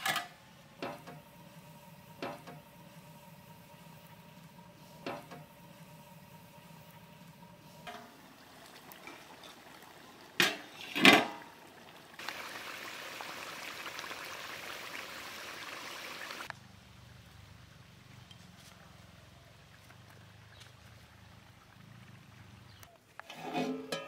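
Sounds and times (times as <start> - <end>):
curry bubbling in metal pot: 0.8 - 16.5.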